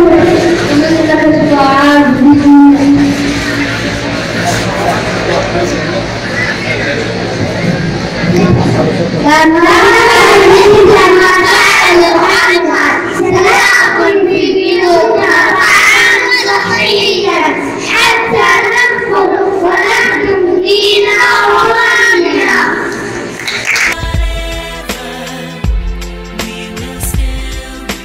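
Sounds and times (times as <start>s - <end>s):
boys singing into microphones: 8.6s - 23.2s, 23.8s - 28.0s.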